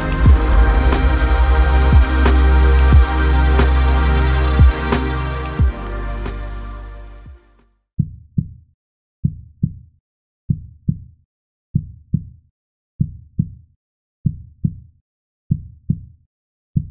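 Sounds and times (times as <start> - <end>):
heartbeat thumps: 0.0 - 3.8, 4.6 - 4.9, 5.6 - 5.8.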